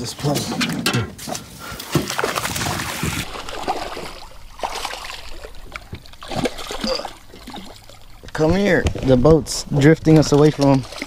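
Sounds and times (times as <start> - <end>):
fish splashing in water: 1.8 - 8.2, 10.4 - 11.0.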